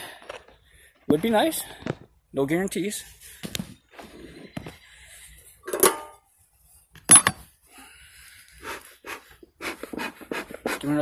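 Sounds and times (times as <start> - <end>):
sharp metallic clanks: 5.6 - 6.2, 7.1 - 7.4.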